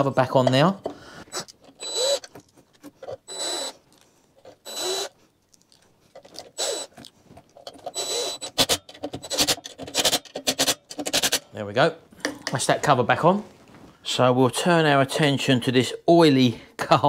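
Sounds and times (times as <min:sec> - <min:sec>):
cordless drill whirring: 0:01.3 - 0:02.3, 0:03.1 - 0:03.8, 0:04.6 - 0:05.2, 0:06.5 - 0:06.9, 0:07.8 - 0:09.5.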